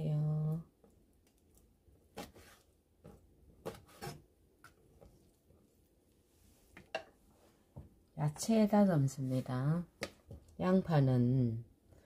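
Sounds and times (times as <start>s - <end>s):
knife cutting on board: 3.6s - 4.2s.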